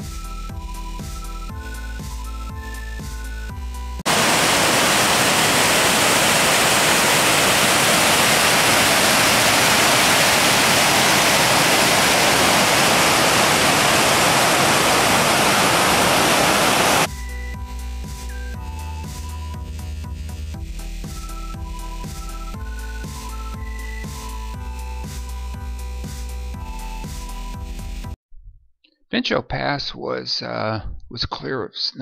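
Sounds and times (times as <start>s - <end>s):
fast-flowing water rushing: 4.1s - 17.1s.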